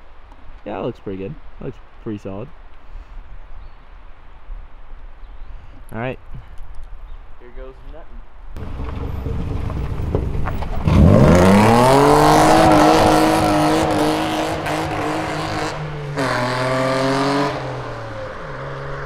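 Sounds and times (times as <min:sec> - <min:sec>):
tyres spinning on dirt: 0:08.6 - 0:14.0
car engine revving: 0:08.6 - 0:19.0.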